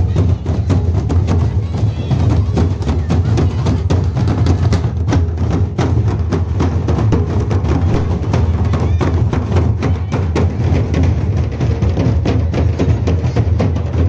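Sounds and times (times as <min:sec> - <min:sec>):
large drum beaten with sticks: 0:00.0 - 0:14.0
barrel drum struck with stick: 0:07.1 - 0:09.7.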